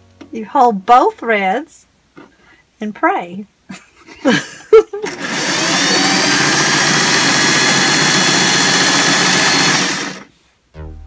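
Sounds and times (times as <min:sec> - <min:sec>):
sewing machine motor whine: 0:05.0 - 0:10.3.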